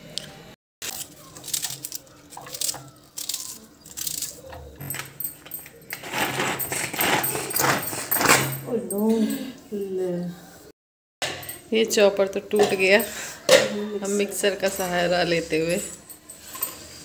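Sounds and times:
cabbage tearing and crumpling: 0.8s - 4.4s, 6.0s - 8.4s
hand vegetable chopper rattling: 0.8s - 8.4s.

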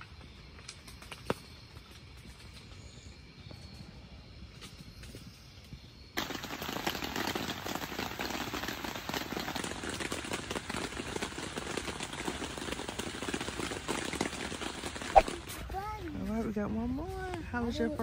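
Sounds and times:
rain pattering on tent fabric: 6.2s - 16.0s.

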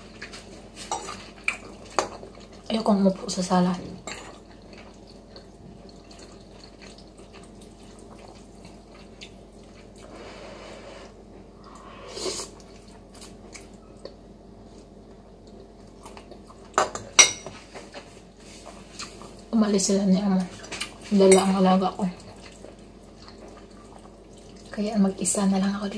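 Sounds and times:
noodles slurped and chewed: 4.5s - 10.4s.

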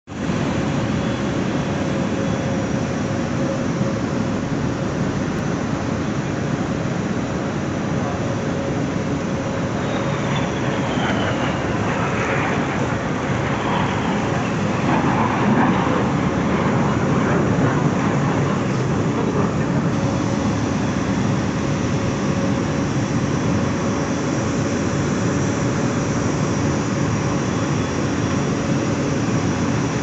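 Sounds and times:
jet aircraft engine noise: 0.1s - 30.0s
steady hum: 0.1s - 30.0s
passing jet whine falling in pitch: 8.6s - 30.0s.

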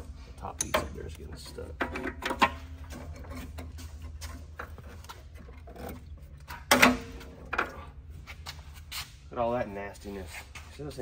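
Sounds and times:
steady low hum: 0.0s - 11.0s
metal clattering scrape: 1.5s - 9.2s.

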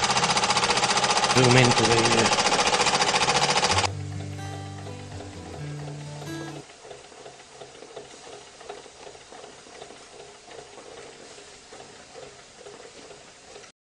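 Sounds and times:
rhythmic cylinder beat: 3.7s - 6.6s.

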